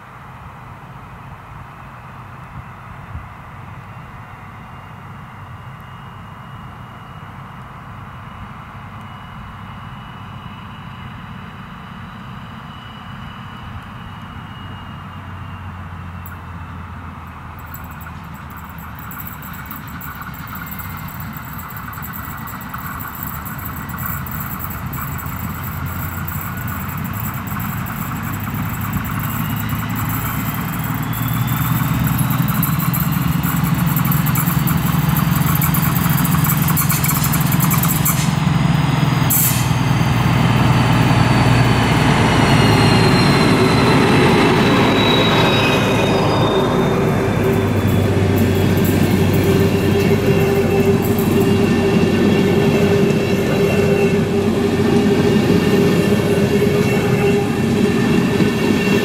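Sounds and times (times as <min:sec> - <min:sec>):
diesel locomotive engine droning: 0:00.0 - 0:59.0
high thin squeal: 0:17.6 - 0:59.0.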